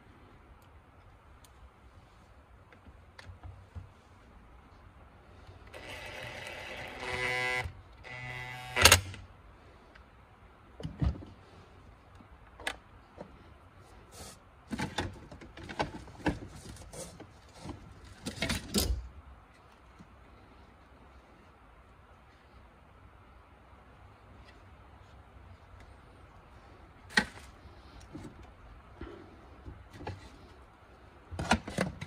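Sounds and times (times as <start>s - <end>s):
cordless drill driving screws: 5.8s - 9.1s
plastic parts clicking and knocking: 14.7s - 16.7s, 31.3s - 32.0s.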